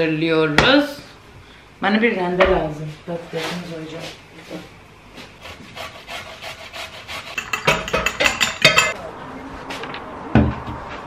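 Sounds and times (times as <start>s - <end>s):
fork beating egg in bowl: 5.5s - 9.0s.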